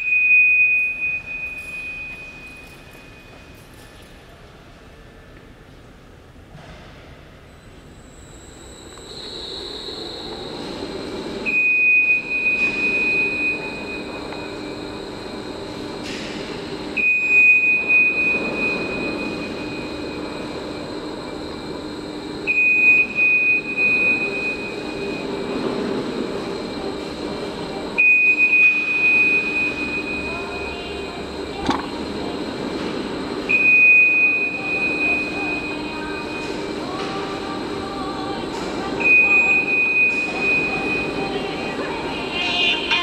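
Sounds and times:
high warning beep: 0.0s - 3.6s, 11.4s - 15.1s, 28.0s - 31.9s, 39.0s - 41.5s
mechanical hum of racks: 0.0s - 43.0s.

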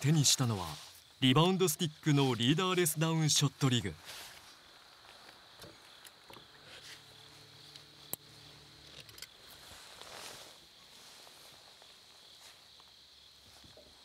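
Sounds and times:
faint high hiss: 0.0s - 14.0s.

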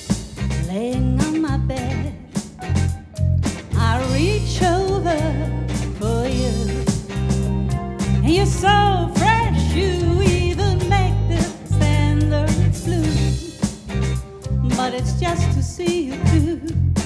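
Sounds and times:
bass guitar: 0.0s - 17.0s
drum kit: 0.0s - 17.0s
electric guitar: 0.0s - 17.0s
keyboard: 0.0s - 17.0s
lead melody line: 2.6s - 15.6s.

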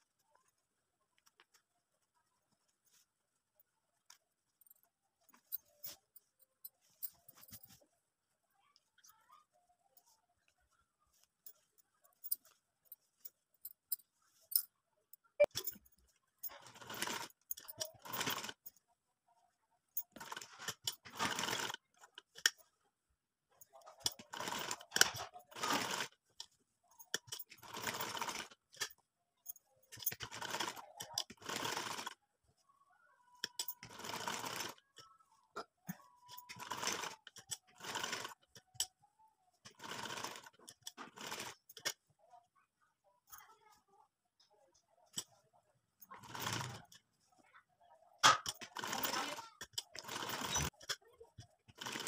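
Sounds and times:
sewing machine stitching: 16.5s - 18.6s, 20.1s - 21.8s, 24.0s - 26.2s, 27.1s - 28.8s, 29.9s - 32.2s, 33.5s - 34.8s, 36.2s - 38.8s, 39.7s - 42.0s, 46.1s - 47.0s, 48.2s - 52.0s.

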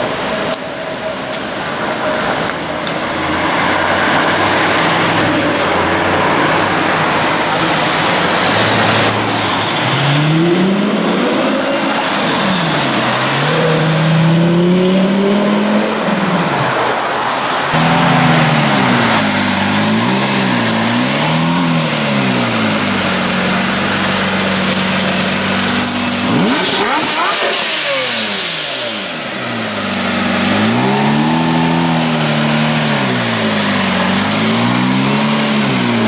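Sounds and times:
car engine revving: 1.7s - 36.0s
pitch sweeping sound: 17.8s - 32.8s.

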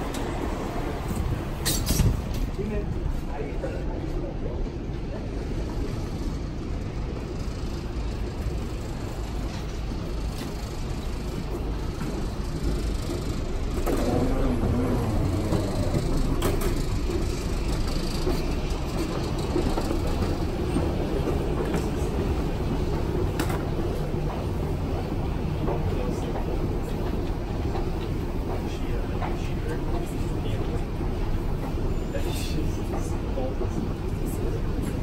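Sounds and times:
escalator rumbling: 4.8s - 35.0s.

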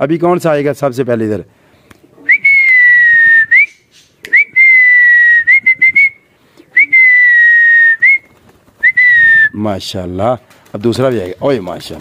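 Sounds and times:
man whistling: 2.3s - 8.2s, 8.8s - 9.6s.

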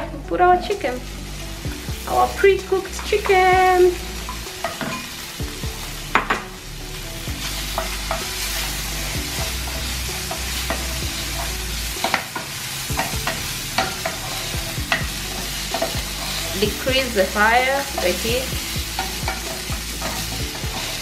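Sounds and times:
chicken sizzling in oil: 0.0s - 21.0s
spatula scraping pan: 7.4s - 21.0s.

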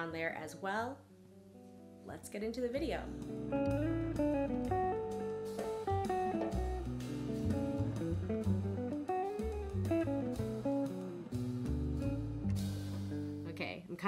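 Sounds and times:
plucked guitar melody: 2.6s - 13.6s
bass line: 2.8s - 13.6s.

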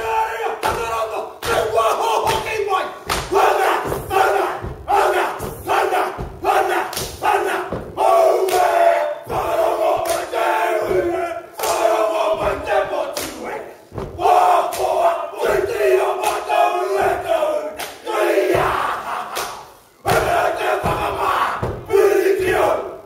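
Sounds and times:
men shouting war chant: 0.0s - 23.0s
feet stamping on stage: 2.3s - 8.1s, 13.9s - 14.3s.

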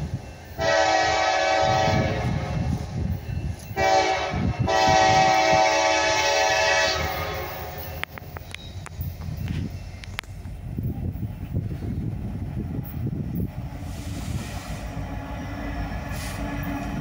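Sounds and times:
low rumble of train rolling: 0.0s - 17.0s
locomotive air horn: 0.6s - 2.6s, 3.8s - 8.1s.

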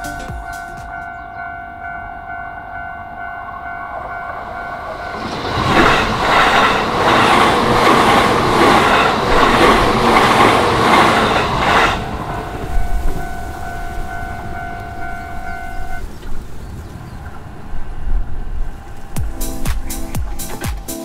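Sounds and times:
level crossing bell ringing: 0.0s - 5.2s, 12.4s - 16.0s
train wheels clattering: 4.9s - 17.4s.

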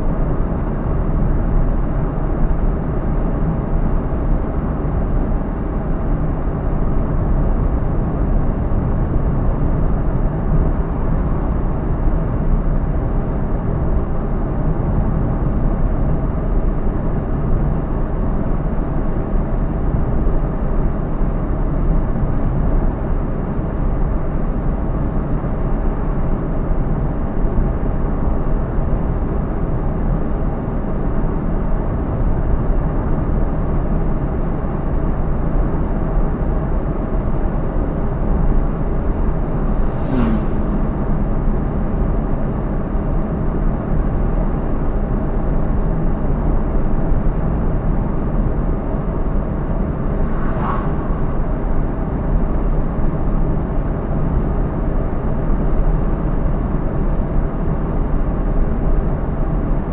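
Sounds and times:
car engine and tyre noise: 0.1s - 59.9s.

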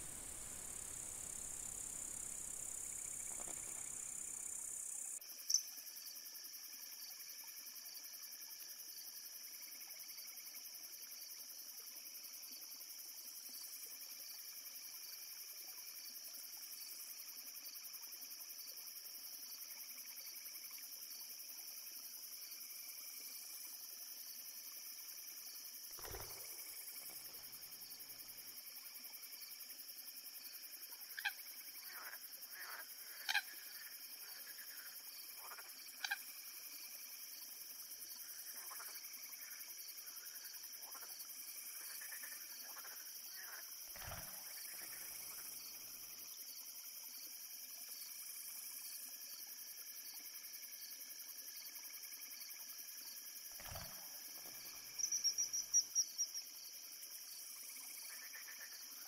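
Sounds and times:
high insect chorus: 0.0s - 59.0s
short sharp frog croaks: 31.1s - 34.8s, 35.4s - 36.3s, 41.9s - 45.5s, 53.6s - 54.2s, 58.1s - 58.8s.

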